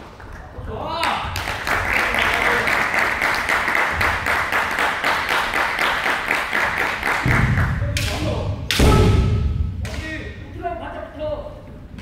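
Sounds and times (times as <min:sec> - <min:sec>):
audience applause: 0:00.0 - 0:07.7
loud thud: 0:08.6 - 0:09.9.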